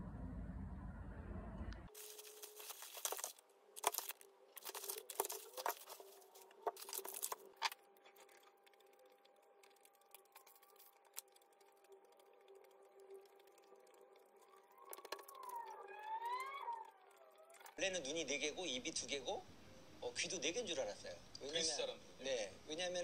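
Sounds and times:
faint steady hum: 0.0s - 23.0s
plastic bag crinkling: 1.9s - 15.7s.

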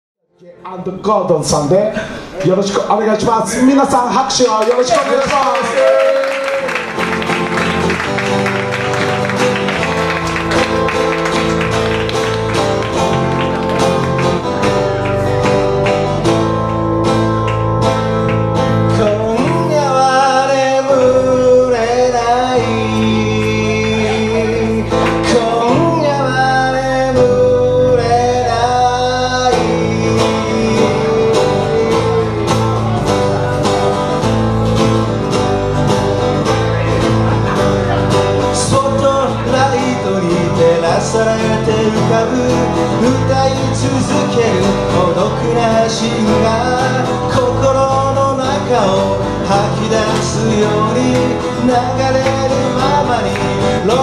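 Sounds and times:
guitars strumming: 6.2s - 54.0s
man singing: 18.6s - 34.2s, 36.5s - 54.0s.

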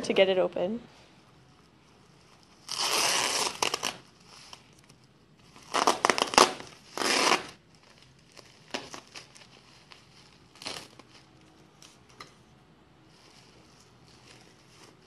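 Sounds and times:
bubble wrap crinkling: 1.3s - 12.2s, 13.1s - 15.0s
packing tape peeling: 2.3s - 12.1s.

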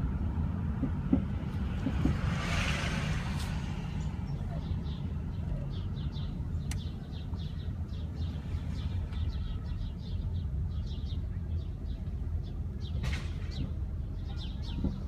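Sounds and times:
steady low rumble: 0.0s - 15.0s
small birds chirping: 3.6s - 15.0s.

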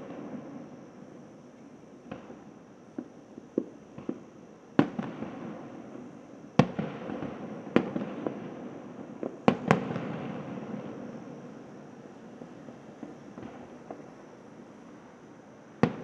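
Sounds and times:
small firework pops: 1.6s - 5.6s, 6.6s - 11.1s, 12.9s - 14.1s, 15.8s - 16.0s.

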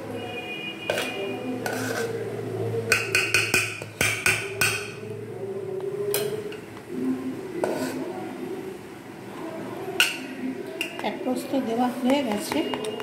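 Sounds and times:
spoon clinking against cooking pot: 0.8s - 2.2s, 2.9s - 5.1s, 10.0s - 11.1s, 12.1s - 13.0s.

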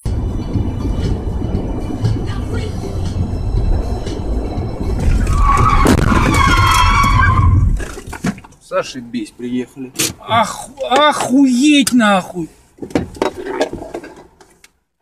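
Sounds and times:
car road rumble: 0.0s - 14.8s
loud high squeal: 4.5s - 7.7s.

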